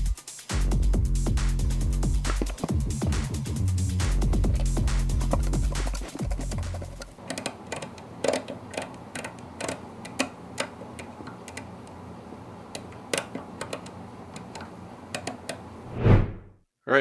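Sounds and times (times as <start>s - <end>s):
small metallic clicks: 5.9s - 11.7s.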